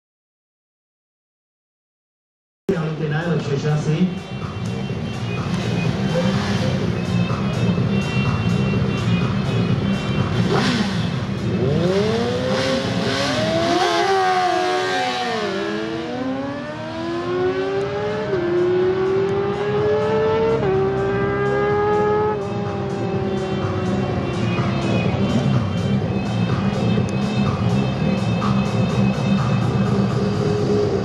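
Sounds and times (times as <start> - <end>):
motorcycles accelerating hard: 5.4 - 31.0.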